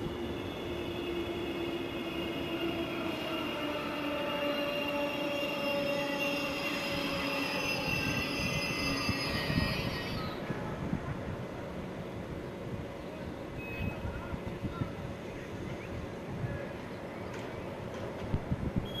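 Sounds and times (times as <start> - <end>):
electric train whining and squealing: 0.0 - 10.7.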